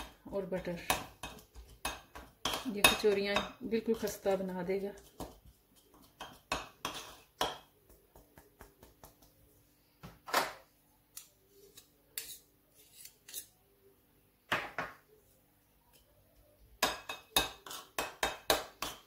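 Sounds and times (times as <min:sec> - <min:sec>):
metal spoon scraping ceramic plate: 0:17.4 - 0:18.0.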